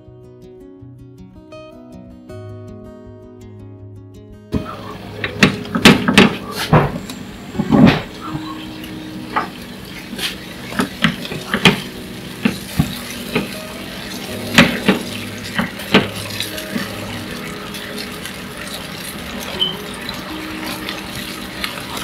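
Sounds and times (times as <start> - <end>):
spatula knocking and scraping pan: 5.2 - 7.0, 10.2 - 13.6, 14.2 - 16.9.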